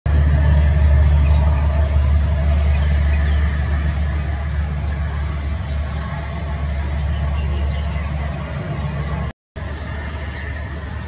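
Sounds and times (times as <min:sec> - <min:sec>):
low engine hum: 0:00.1 - 0:11.0.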